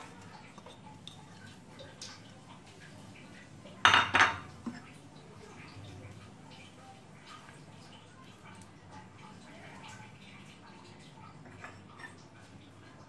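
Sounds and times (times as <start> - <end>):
kitchen dishes clinking: 3.8 - 4.8, 11.4 - 12.3
dish knock: 3.9 - 4.5.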